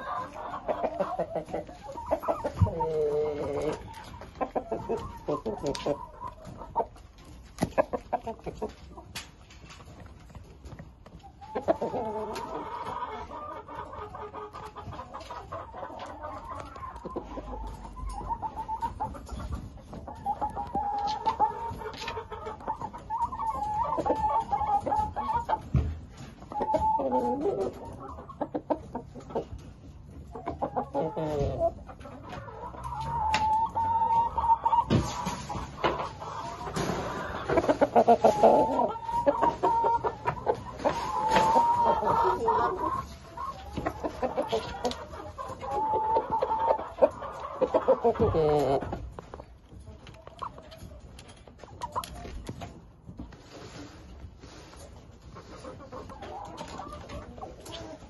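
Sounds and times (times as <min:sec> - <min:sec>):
chickens calling and clucking: 0:00.0 - 0:58.0
roosters crowing: 0:32.5 - 0:48.8.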